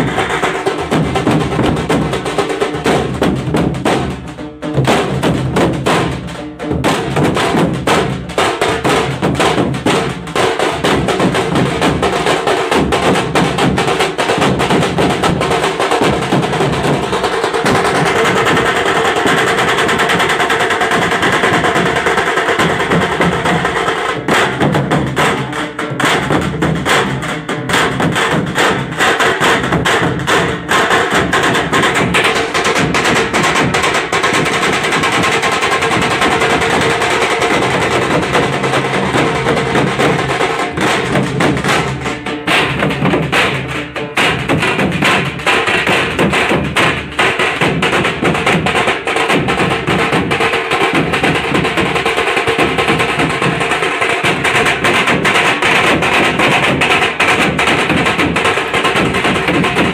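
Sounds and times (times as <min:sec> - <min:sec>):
deep barrel drum strokes: 0:00.0 - 0:28.6, 0:29.6 - 0:48.2
fast stick drumming: 0:00.0 - 0:59.9.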